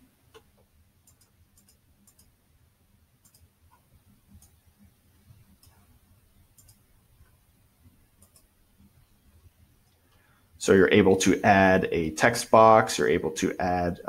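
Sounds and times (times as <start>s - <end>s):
computer mouse clicks: 0.3s - 2.3s, 3.2s - 4.6s, 5.5s - 5.8s, 6.5s - 7.4s, 8.2s - 8.5s.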